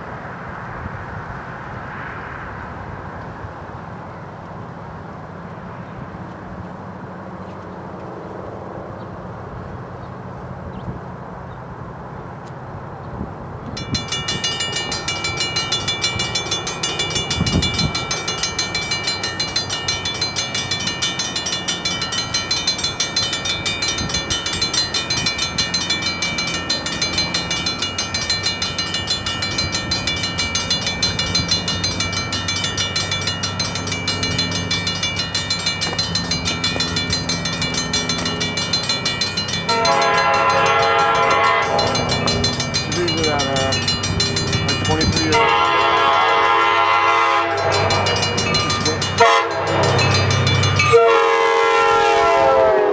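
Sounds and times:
railroad crossing bell ringing: 0:13.6 - 0:52.9
train horn: 0:39.7 - 0:42.1, 0:45.2 - 0:48.2, 0:49.2 - 0:50.0, 0:50.9 - 0:52.9.

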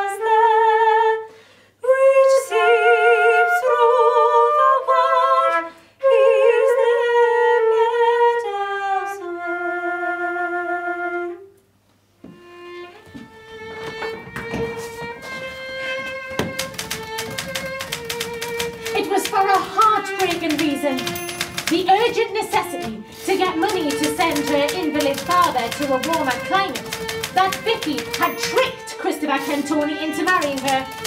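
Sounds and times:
rapid sharp clicks: 0:16.2 - 0:31.0.

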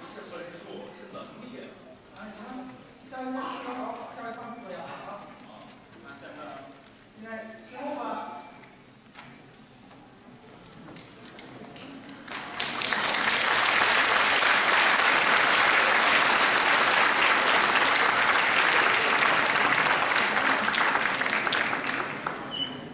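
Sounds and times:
audience applauding: 0:12.2 - 0:22.9.

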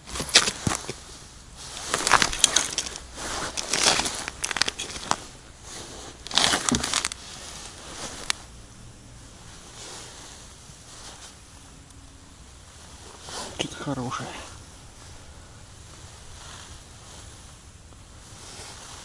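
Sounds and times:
crunching on snowy ice: 0:00.0 - 0:08.5
padded suit rustling: 0:00.0 - 0:08.5, 0:09.2 - 0:11.6, 0:12.5 - 0:13.8, 0:14.5 - 0:19.0.

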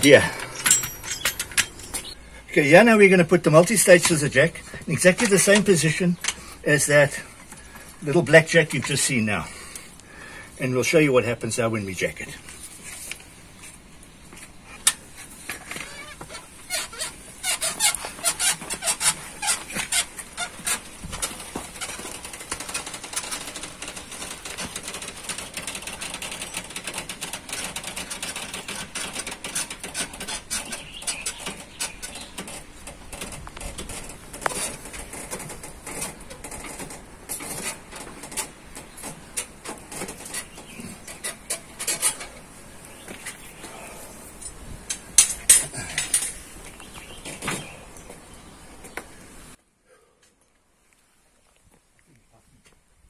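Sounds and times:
scissor jack clicking and squeaking: 0:00.4 - 0:02.2, 0:15.8 - 0:38.5.

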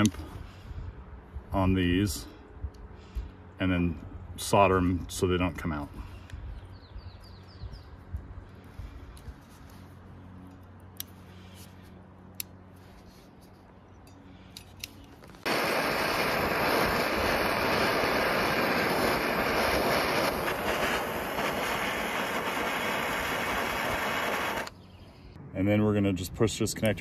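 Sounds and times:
butane torch hissing: 0:15.4 - 0:24.8.

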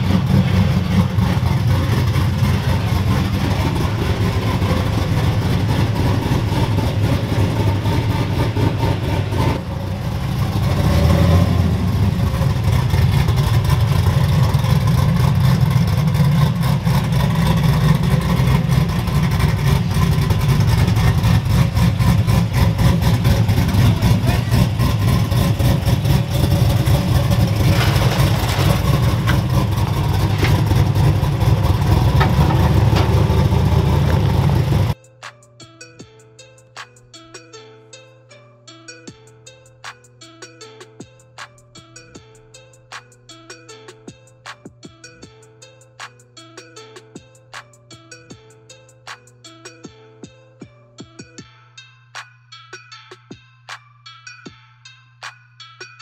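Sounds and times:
truck exhaust rumble driving past: 0:00.0 - 0:35.0.

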